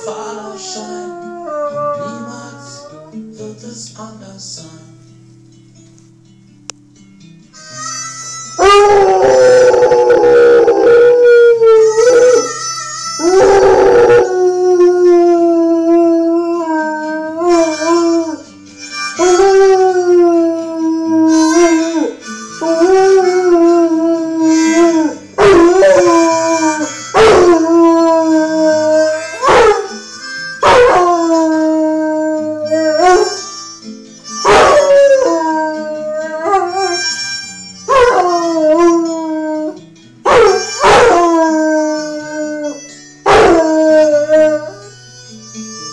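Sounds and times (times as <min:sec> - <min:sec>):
harmonica music: 0:00.0 - 0:04.2, 0:05.2 - 0:45.9
dog howling: 0:00.3 - 0:03.1, 0:13.2 - 0:18.4, 0:22.8 - 0:30.0, 0:30.6 - 0:33.4, 0:34.5 - 0:37.1, 0:37.9 - 0:44.8.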